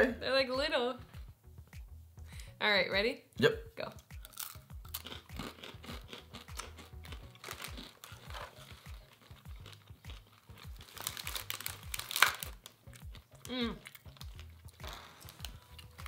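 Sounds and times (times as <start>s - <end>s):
background music: 0.0s - 16.0s
crackers being bitten and chewed: 4.2s - 16.0s
plastic snack packet crinkling: 4.4s - 16.0s.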